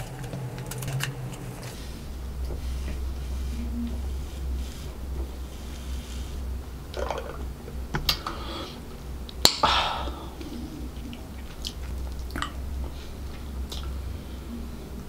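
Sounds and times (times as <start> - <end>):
slurping through a straw: 2.6 - 7.5
breathy exhale: 8.2 - 9.0, 9.6 - 11.1
wet mouth clicks: 10.4 - 12.6, 13.7 - 14.0.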